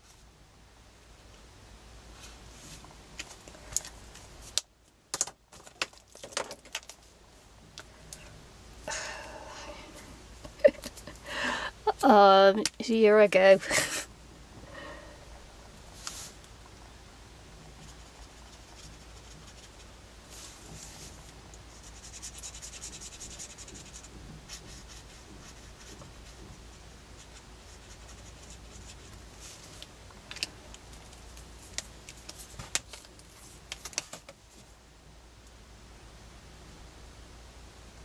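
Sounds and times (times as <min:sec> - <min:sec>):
marker scratching on paper: 0:17.8 - 0:19.9, 0:21.7 - 0:29.2.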